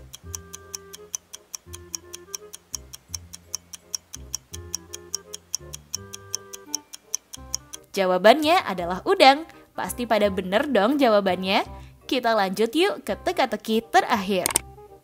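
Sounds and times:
clock ticking: 0.0s - 7.9s
looping background tune: 0.0s - 15.0s.

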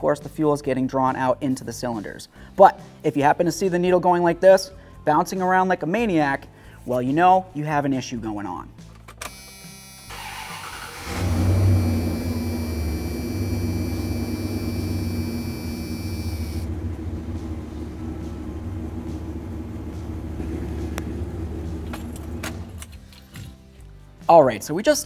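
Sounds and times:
pickup engine starting and idling: 10.1s - 23.0s
thin high whine: 11.6s - 16.8s.

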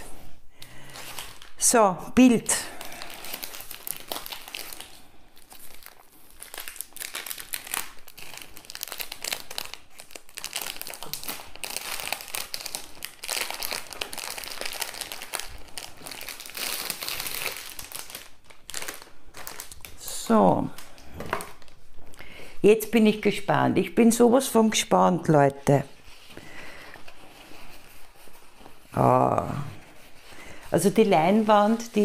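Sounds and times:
wrapper crinkling and rustling: 0.8s - 22.2s, 25.8s - 32.0s.

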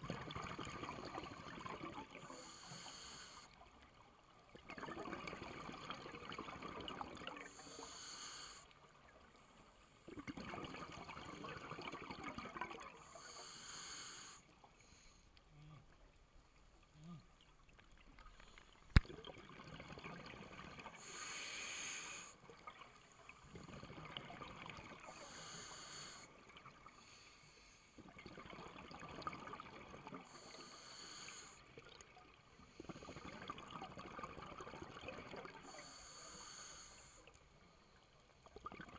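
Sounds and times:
exhaled air bubbles crackling: 0.0s - 2.5s, 3.7s - 7.6s, 10.0s - 13.5s, 17.0s - 27.0s, 28.0s - 30.8s, 31.7s - 35.8s, 38.4s - 38.9s
scuba regulator hiss: 2.3s - 3.5s, 7.5s - 8.7s, 13.0s - 15.1s, 21.0s - 22.4s, 25.1s - 26.3s, 30.3s - 31.6s, 35.6s - 37.2s.

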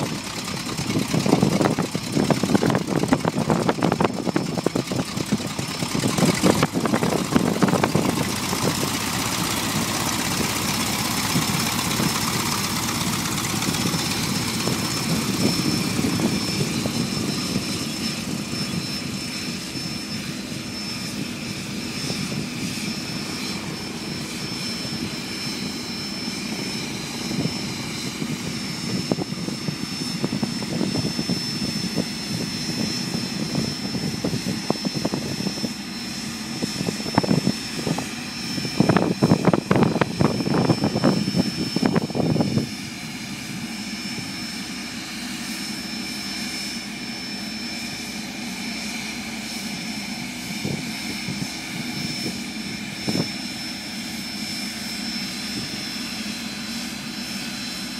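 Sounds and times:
propeller plane engine running: 0.0s - 57.9s.

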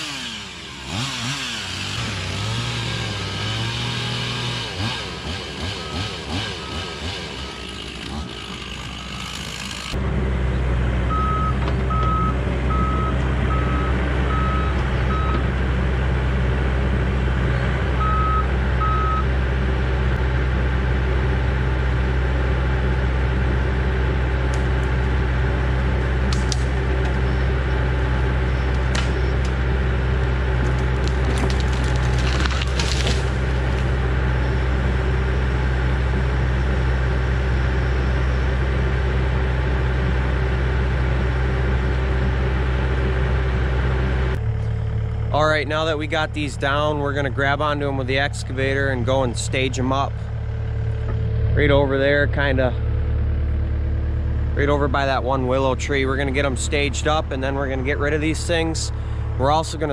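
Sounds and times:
excavator diesel engine: 0.0s - 59.9s
trees cracking and snapping: 7.0s - 10.0s, 26.2s - 27.2s, 28.7s - 29.7s, 30.3s - 34.1s.

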